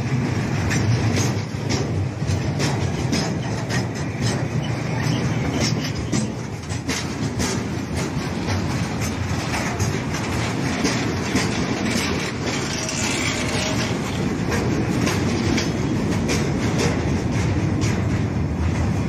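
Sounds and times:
freight wagons rumbling on rails: 0.0 - 19.0
wheels clacking over rail joints: 0.0 - 19.0.

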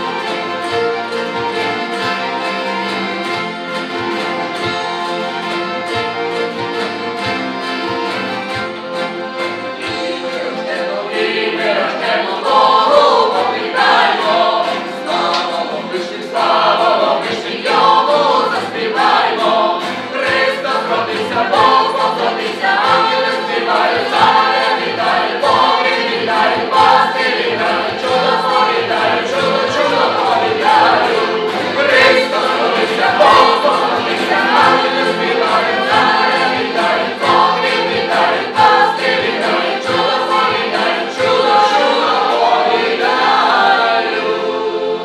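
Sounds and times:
accordion: 0.0 - 45.0
acoustic guitar: 0.0 - 45.0
group singing together: 0.0 - 45.0.

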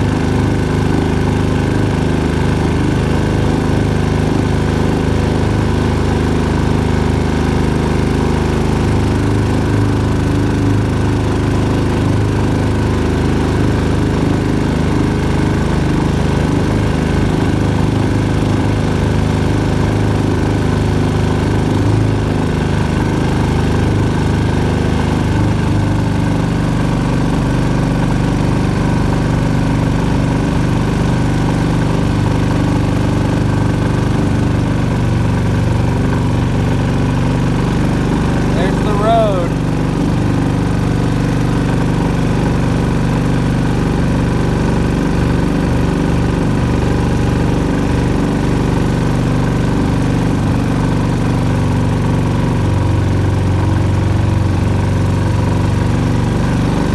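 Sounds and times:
boat motor engine running: 0.0 - 56.9.

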